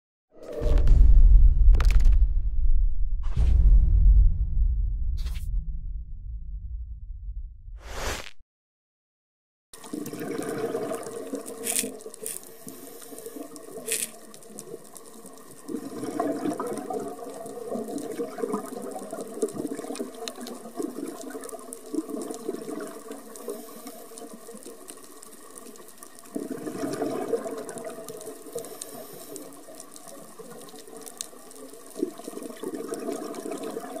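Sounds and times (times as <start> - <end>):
underwater regulator bubbles: 9.8 - 24.8, 25.4 - 34.0
steady water noise: 9.8 - 34.0.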